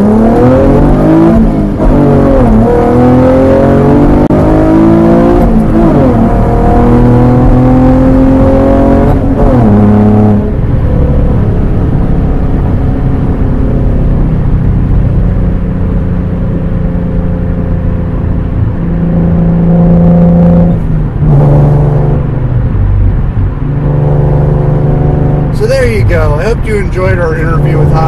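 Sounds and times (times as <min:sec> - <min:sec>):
car engine accelerating: 0:00.0 - 0:28.0.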